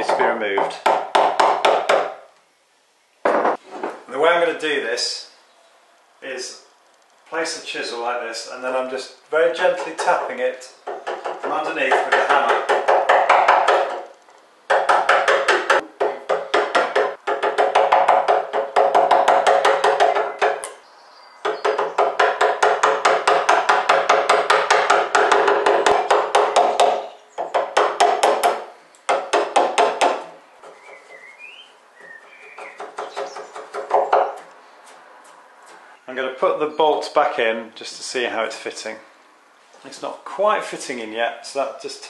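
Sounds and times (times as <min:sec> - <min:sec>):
hammer tapping wood chisel: 0:00.0 - 0:02.2, 0:10.8 - 0:20.8, 0:21.4 - 0:31.0, 0:32.5 - 0:35.8.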